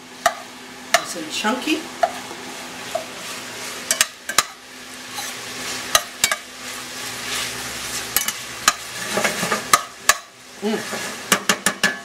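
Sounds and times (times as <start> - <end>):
sausage sizzling in a pan: 0.0 - 12.0
metal spoon clinking on pan: 3.9 - 4.6, 6.0 - 6.5.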